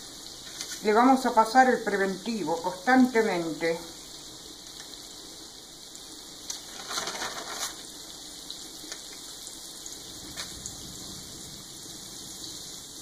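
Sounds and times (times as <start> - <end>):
frying oil sizzling: 0.0 - 13.0
flour and paper rustling: 0.4 - 0.9, 6.6 - 7.9.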